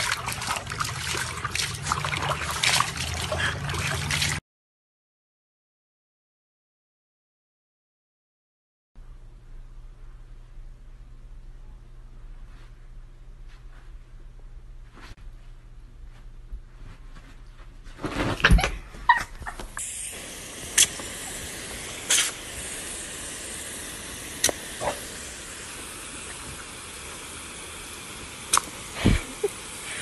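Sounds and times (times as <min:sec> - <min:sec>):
hose nozzle spraying water: 0:00.0 - 0:04.4, 0:19.8 - 0:30.0.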